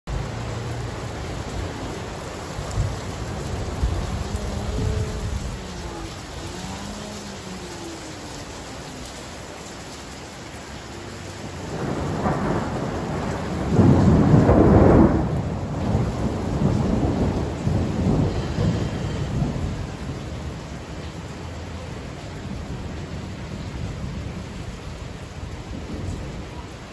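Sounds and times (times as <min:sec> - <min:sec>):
thunder rolling: 0:00.1 - 0:08.3, 0:11.4 - 0:20.7
steady rain: 0:00.1 - 0:26.9.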